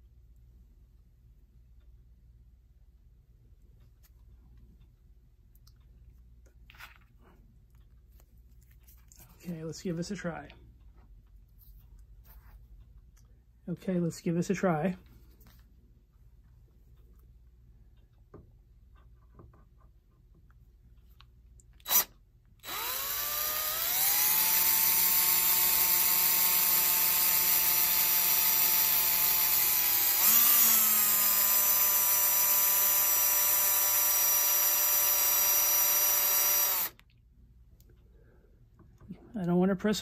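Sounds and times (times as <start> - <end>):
cordless drill drilling into metal: 21.8 - 37.0.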